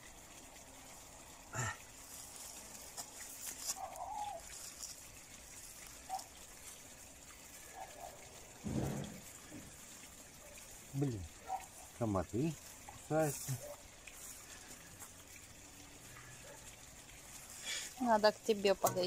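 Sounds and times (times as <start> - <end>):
soil crumbling and scraping: 1.6 - 6.9.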